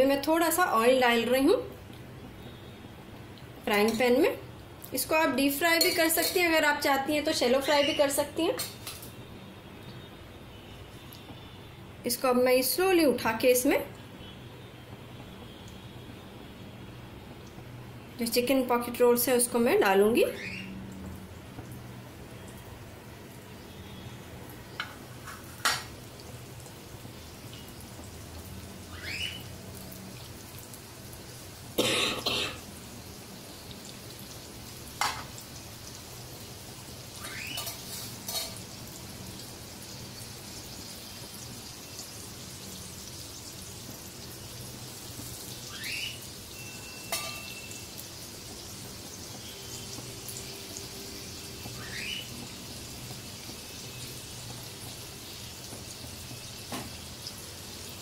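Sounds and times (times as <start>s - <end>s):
oil sizzling in a frying pan: 0.0s - 31.8s, 32.5s - 58.0s
knocks and clatters in pan: 35.0s - 35.3s.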